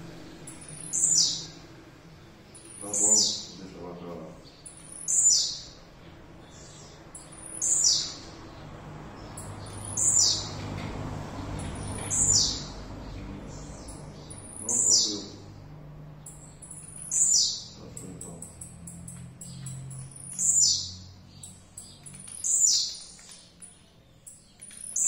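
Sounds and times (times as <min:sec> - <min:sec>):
songbird singing: 0:00.0 - 0:25.0.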